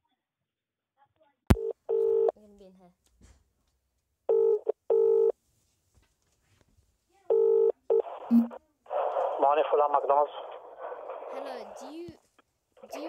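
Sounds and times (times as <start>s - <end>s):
phone ringback tone: 1.5s - 2.3s, 4.3s - 5.3s, 7.3s - 8.5s.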